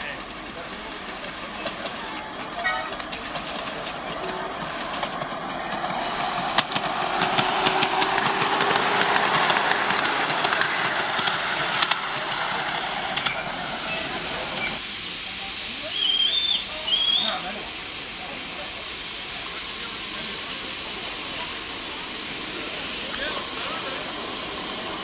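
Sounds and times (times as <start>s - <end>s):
wheels clicking over rail joints: 0.0s - 13.5s
miniature train rolling on track: 0.0s - 25.0s
steam locomotive hissing: 0.0s - 25.0s.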